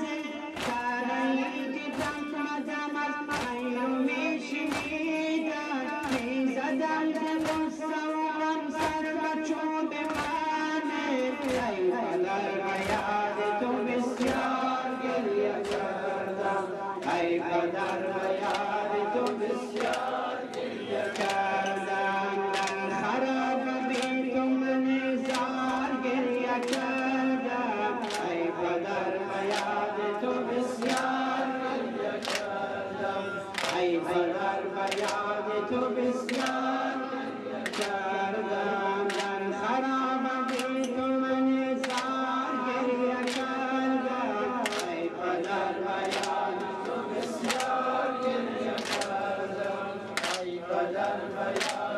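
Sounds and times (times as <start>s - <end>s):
voices chanting in long tones: 0.0s - 51.9s
sharp rhythmic beat: 0.1s - 24.4s.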